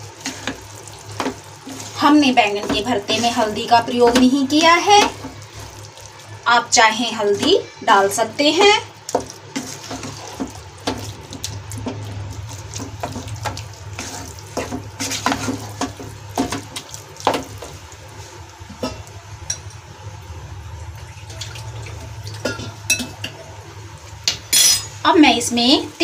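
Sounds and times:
spatula scraping and squelching in pan: 0.0s - 6.3s, 7.2s - 19.1s.

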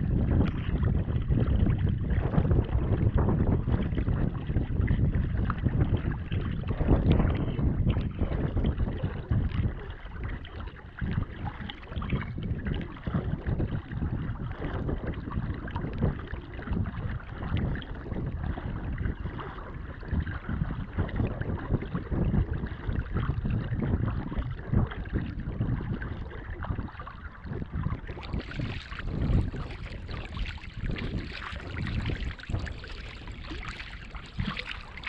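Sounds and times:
water washing along hull: 0.0s - 35.0s
wind buffeting microphone: 0.0s - 35.0s
paddle strokes splashing: 26.5s - 35.0s.

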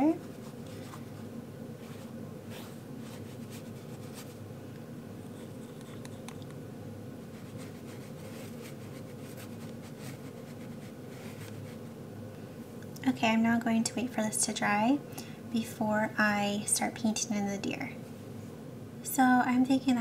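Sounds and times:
steady low hum: 0.0s - 20.0s
paintbrush scratching on paper: 1.8s - 4.4s, 5.2s - 6.4s, 7.3s - 11.9s.

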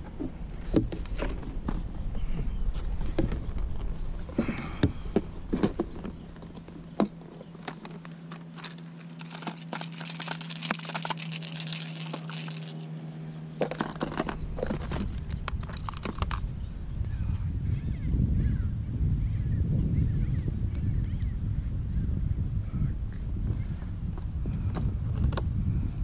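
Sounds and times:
steady low hum: 0.0s - 26.0s
plastic lures clicking and rattling: 7.7s - 12.9s, 13.6s - 16.6s.

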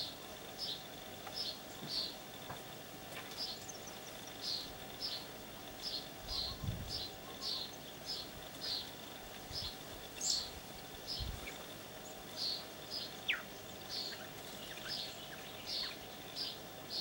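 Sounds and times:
faint high hum: 0.0s - 17.0s
bird chirping: 3.3s - 17.0s.

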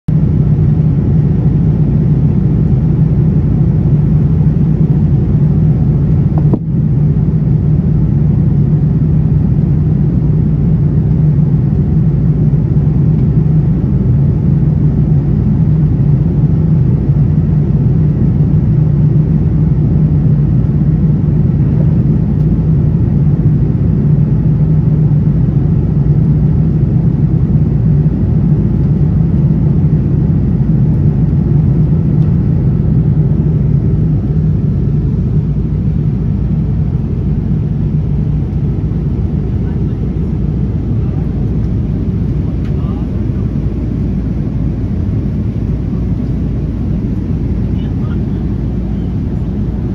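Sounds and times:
airliner cabin noise: 0.2s - 49.9s.

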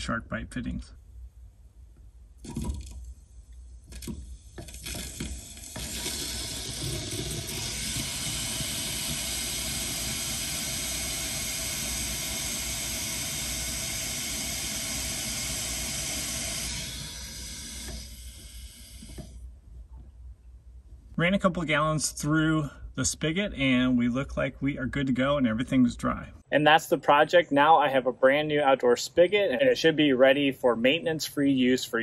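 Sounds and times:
water flowing through spigot: 2.4s - 19.4s.

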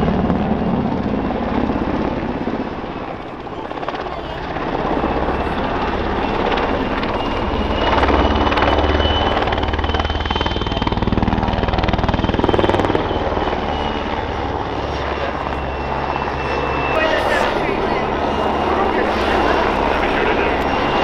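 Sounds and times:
helicopter rotor beating: 0.0s - 21.0s
turbine engine whine: 0.0s - 21.0s.

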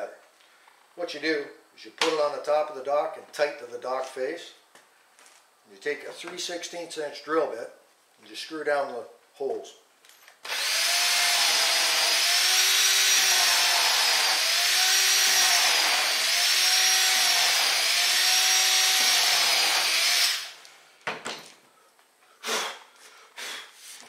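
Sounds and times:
cordless drill drilling into wood: 10.4s - 20.7s.

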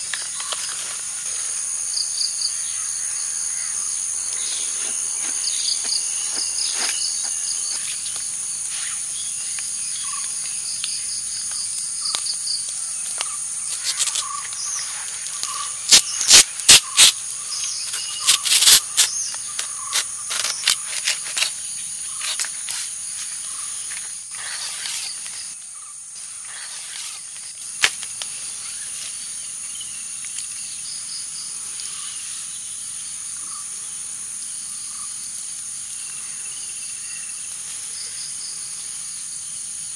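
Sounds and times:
banana leaf crackling and rustling: 0.0s - 2.0s, 3.8s - 30.6s
insects chirring: 0.0s - 39.9s.

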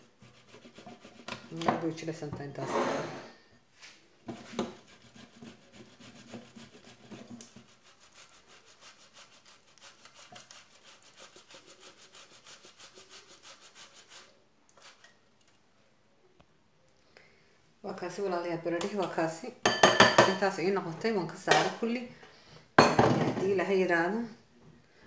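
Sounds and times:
potato grated on metal grater: 0.0s - 1.7s, 4.3s - 15.1s.

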